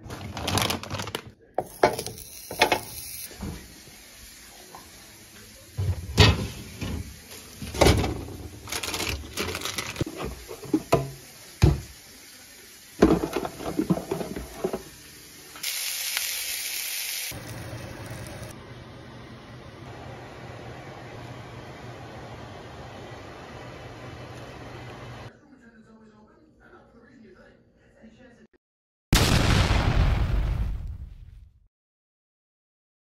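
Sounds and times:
patties sizzling in a pan: 1.6s - 8.7s, 10.0s - 18.6s.

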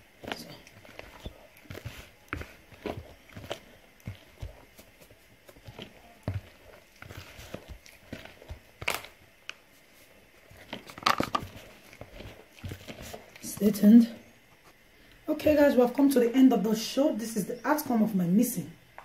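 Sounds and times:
hand squelching batter in bowl: 0.0s - 14.7s.

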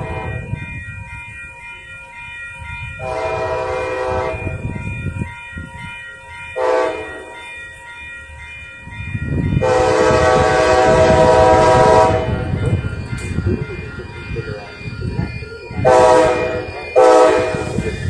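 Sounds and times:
train horn blasts: 0.0s - 0.5s, 3.0s - 4.6s, 6.6s - 7.4s, 9.6s - 12.6s, 15.8s - 17.8s
low rumble of train: 0.0s - 18.0s
steady electronic ringing: 0.0s - 18.0s.

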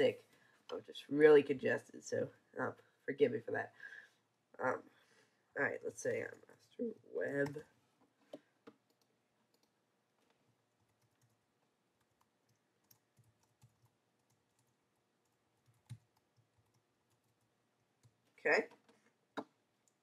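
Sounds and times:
computer keyboard typing: 10.7s - 11.4s, 12.0s - 18.2s.

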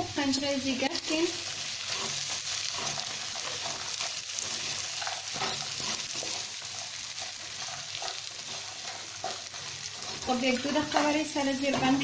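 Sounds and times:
vegetables sizzling in oil: 0.0s - 12.0s
spatula scraping a pan: 1.4s - 12.0s.

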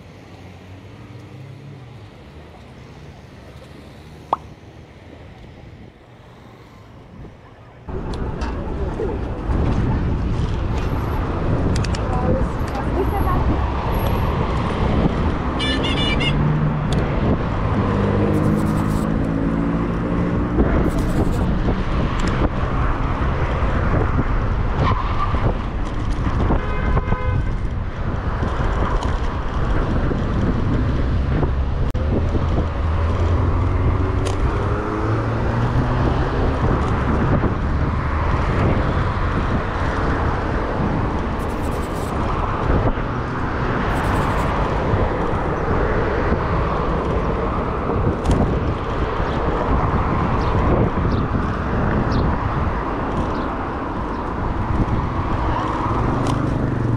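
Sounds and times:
cars passing: 0.0s - 56.9s.

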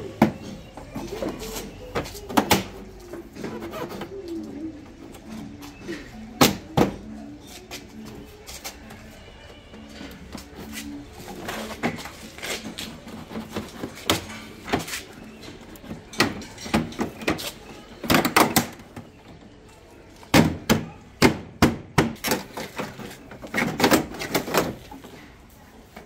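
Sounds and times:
plastic panels clicking and knocking: 12.8s - 19.5s, 20.3s - 25.1s.

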